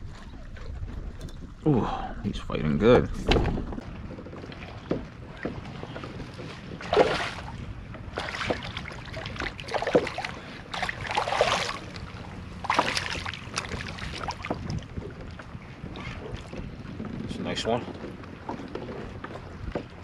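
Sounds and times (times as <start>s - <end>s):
water splashing: 3.2s - 16.8s.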